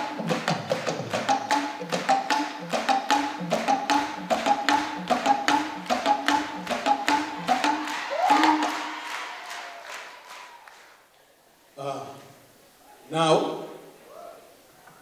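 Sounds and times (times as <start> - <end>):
talking drum strikes: 0.0 - 9.0.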